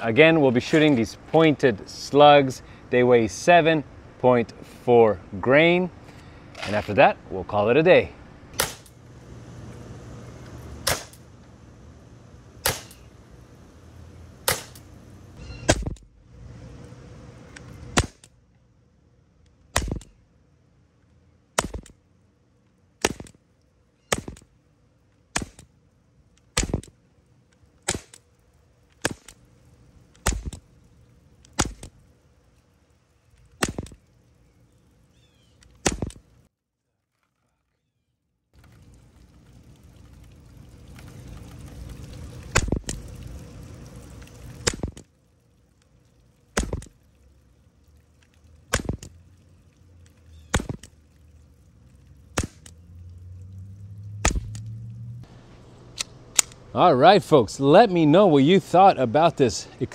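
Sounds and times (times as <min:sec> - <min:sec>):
pellet pistol shots: 0:08.5 - 0:08.9, 0:10.8 - 0:11.2, 0:12.6 - 0:13.0, 0:14.4 - 0:14.9, 0:17.9 - 0:18.3, 0:19.7 - 0:20.2, 0:21.6 - 0:21.9, 0:23.0 - 0:23.4, 0:24.1 - 0:24.5, 0:25.3 - 0:25.7, 0:26.5 - 0:26.9, 0:27.8 - 0:28.2, 0:29.0 - 0:29.4, 0:30.2 - 0:30.6, 0:31.5 - 0:31.9, 0:33.6 - 0:34.0, 0:35.8 - 0:36.2, 0:46.6 - 0:46.9, 0:48.7 - 0:49.1, 0:50.5 - 0:50.9, 0:52.4 - 0:52.7, 0:54.2 - 0:54.6.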